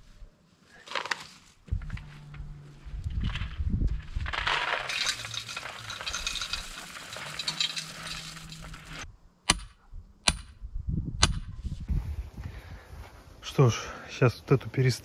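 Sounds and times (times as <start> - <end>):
gritty crackling rustle: 0.6 - 9.1.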